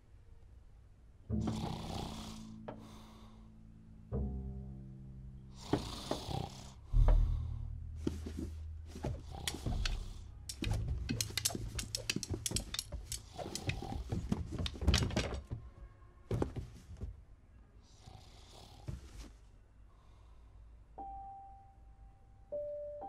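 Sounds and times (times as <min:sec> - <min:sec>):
low rumble: 0:06.8 - 0:08.9
heavy low thud: 0:06.9 - 0:08.3
quick sharp taps and knocks: 0:09.5 - 0:15.4.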